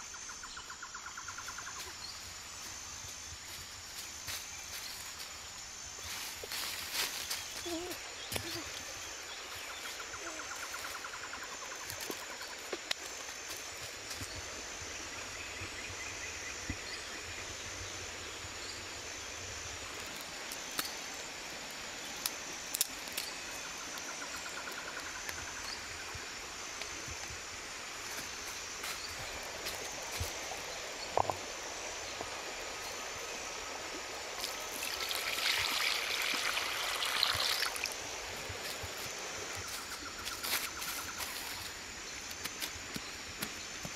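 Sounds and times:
water pouring into a pan: 0:34.7 - 0:38.0.

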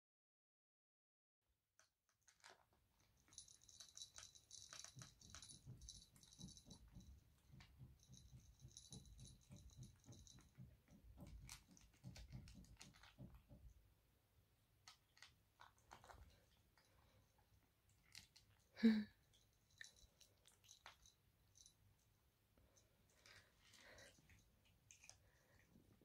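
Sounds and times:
kitten crunching kibble: 0:01.8 - 0:13.8, 0:14.6 - 0:26.0.

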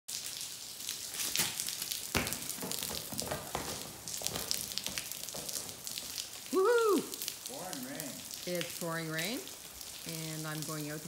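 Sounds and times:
rain on stone patio: 0:00.1 - 0:11.0
dull thump: 0:02.1 - 0:05.8.

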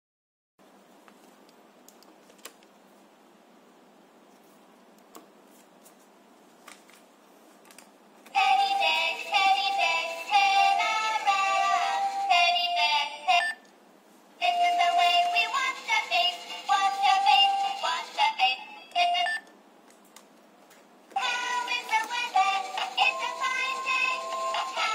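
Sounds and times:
toy speaker sung jingle: 0:08.4 - 0:13.6, 0:14.4 - 0:19.4, 0:21.2 - 0:24.9.

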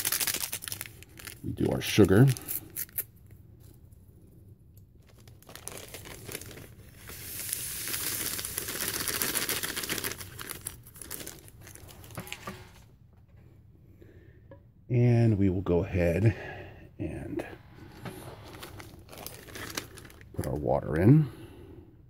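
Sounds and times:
plastic packet crinkling: 0:00.0 - 0:03.1, 0:05.0 - 0:12.5, 0:17.8 - 0:20.6.

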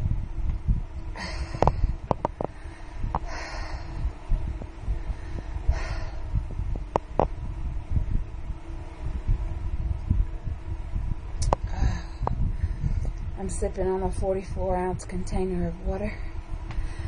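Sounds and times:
low rumble: 0:00.0 - 0:17.0
woman breathing hard: 0:01.1 - 0:06.6, 0:11.6 - 0:13.2, 0:16.2 - 0:17.0.

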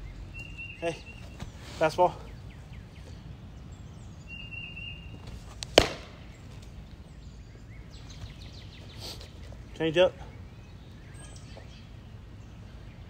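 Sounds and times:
ball smacking into catcher's mitt: 0:05.2 - 0:06.8.

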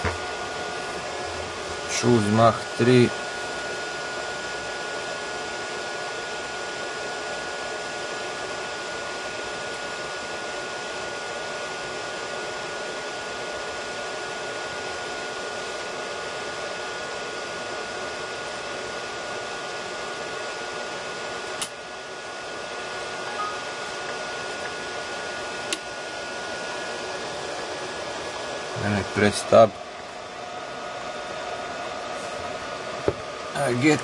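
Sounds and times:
electric fan whir: 0:00.0 - 0:34.0
thin high electronic tone: 0:23.2 - 0:24.0.

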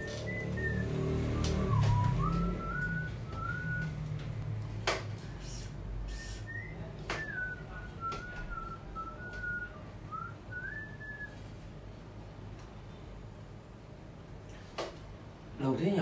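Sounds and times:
man whistling: 0:00.0 - 0:04.0, 0:06.1 - 0:11.4.

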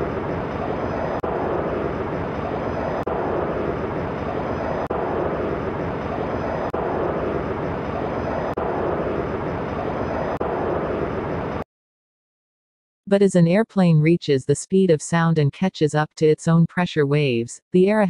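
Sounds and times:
jet engine rushing: 0:00.0 - 0:11.6.

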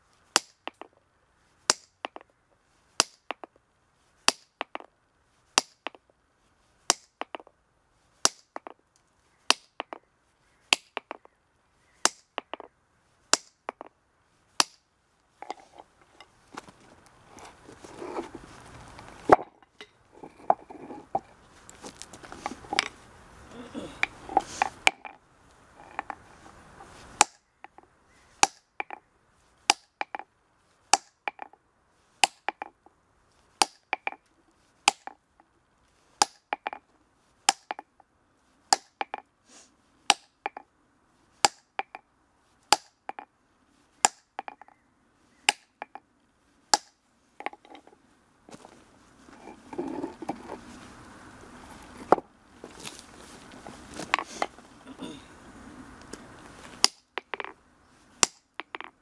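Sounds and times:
stone scraping: 0:15.4 - 0:27.8, 0:47.4 - 0:50.9, 0:51.7 - 0:54.7, 0:56.8 - 0:57.6, 0:58.2 - 0:59.0.

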